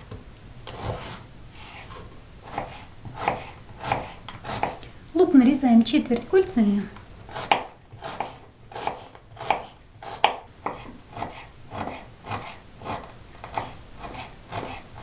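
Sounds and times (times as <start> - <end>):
knife chopping on cutting board: 2.5 - 4.8, 7.3 - 15.0.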